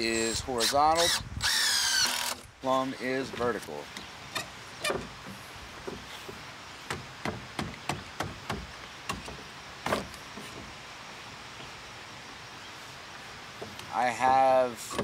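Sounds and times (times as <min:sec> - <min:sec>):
wooden boards knocking: 0:04.4 - 0:10.7.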